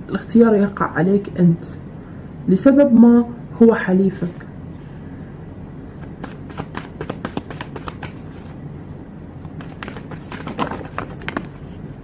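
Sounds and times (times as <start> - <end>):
cards being shuffled: 6.0 - 8.6, 9.4 - 11.8.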